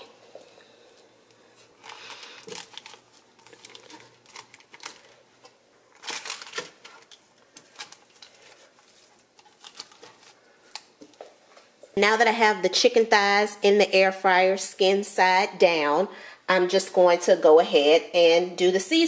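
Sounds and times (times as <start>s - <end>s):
paper liner crinkling: 0.9s - 5.3s, 5.9s - 11.2s.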